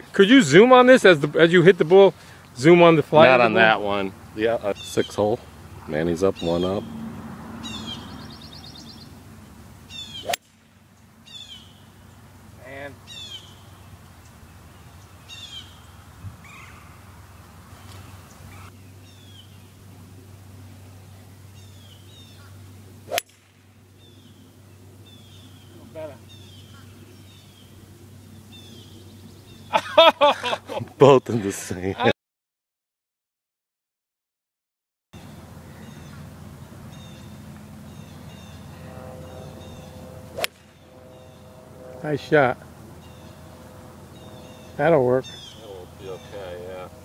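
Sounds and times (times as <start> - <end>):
outdoor noise: 0.0 - 32.2, 35.2 - 47.0
golf club striking ball: 9.9 - 11.9, 22.4 - 23.8, 39.6 - 41.4.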